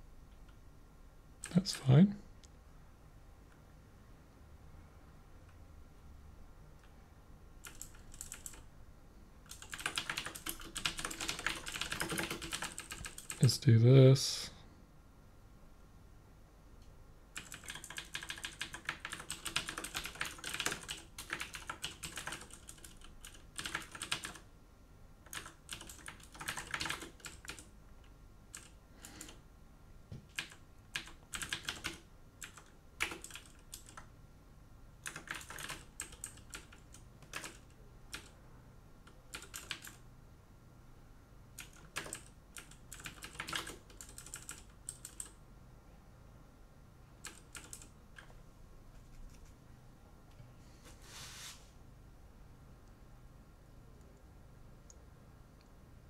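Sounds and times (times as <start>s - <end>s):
computer keyboard typing: 1.4s - 1.8s, 7.6s - 8.7s, 9.5s - 13.4s, 17.4s - 24.5s, 25.2s - 27.7s, 28.5s - 29.4s, 30.3s - 34.1s, 35.0s - 38.4s, 39.0s - 40.0s, 41.6s - 45.4s, 47.2s - 48.4s.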